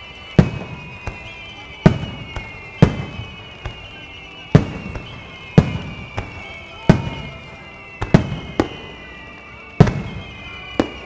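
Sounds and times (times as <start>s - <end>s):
fireworks booming: 0.0s - 9.0s, 9.8s - 11.0s
fireworks popping: 0.0s - 11.0s.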